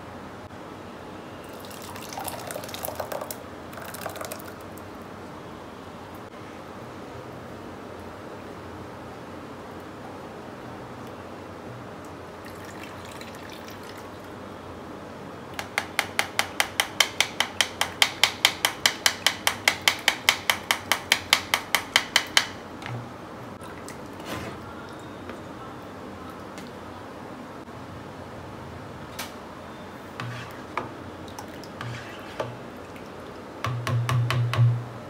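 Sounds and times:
spoon knocking on plastic strainer: 0:15.6 - 0:23.0, 0:33.6 - 0:34.8.

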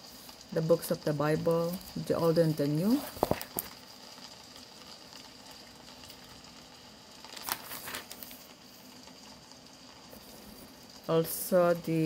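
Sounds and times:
pages being turned: 0:03.1 - 0:03.7, 0:07.2 - 0:08.4
paper rustle: 0:07.3 - 0:08.4.

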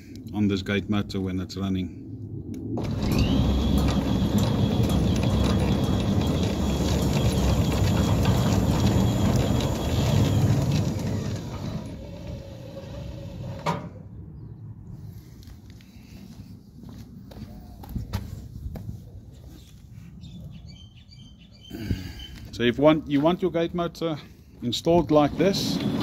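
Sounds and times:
gate motor whine: 0:02.8 - 0:14.0, 0:25.2 - 0:26.0
gate rolling rattle: 0:02.8 - 0:14.0, 0:25.1 - 0:26.0.

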